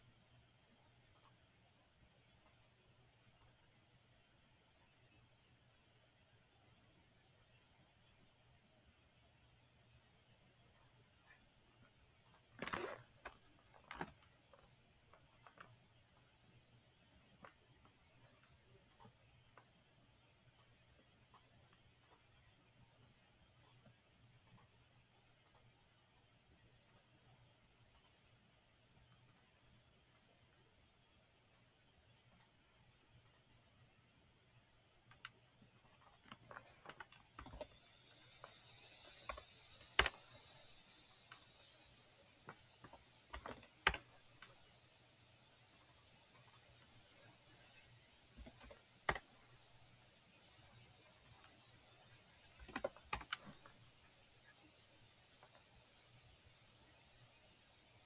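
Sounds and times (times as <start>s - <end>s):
computer mouse clicking: 1.1s - 1.4s, 3.4s - 3.6s, 10.7s - 11.0s, 12.2s - 16.3s, 17.3s - 19.7s, 20.6s - 22.3s, 23.0s - 24.7s, 25.4s - 25.7s, 26.9s - 27.1s, 27.9s - 28.2s, 29.2s - 30.3s, 32.3s - 32.6s, 33.2s - 33.5s, 35.1s - 41.8s, 42.4s - 44.6s, 45.7s - 46.9s, 48.3s - 49.4s, 51.0s - 51.7s, 52.4s - 53.8s, 57.2s - 57.4s
keyboard key presses: 35.1s - 37.8s, 38.4s - 40.2s, 42.5s - 44.5s, 52.6s - 53.7s.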